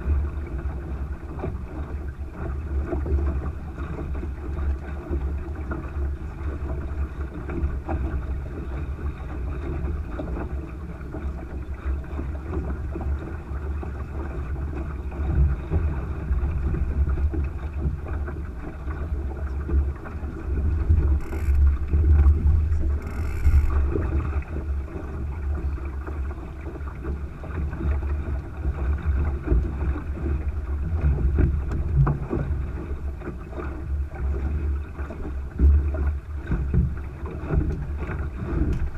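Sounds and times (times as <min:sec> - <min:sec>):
wind buffeting microphone: 0:00.0 - 0:26.4
water washing along hull: 0:00.0 - 0:38.9.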